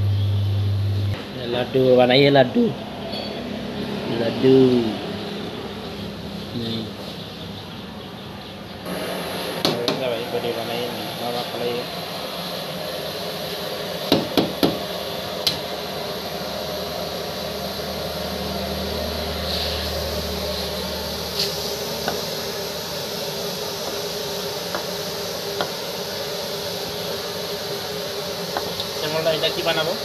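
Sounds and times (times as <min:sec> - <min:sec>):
steady background hum: 0:00.0 - 0:30.0
metal scraper knocking on wood: 0:14.1 - 0:14.8.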